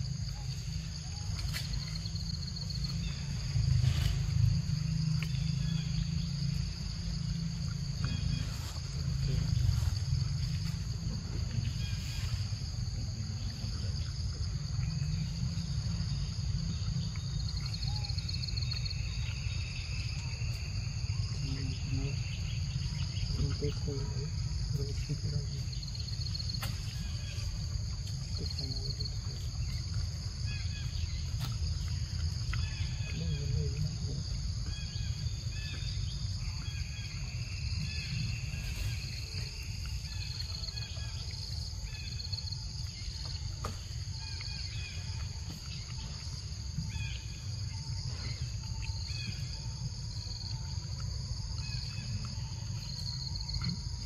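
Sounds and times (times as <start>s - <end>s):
insects chorus: 0.0s - 54.0s
low even rumble: 1.8s - 42.1s.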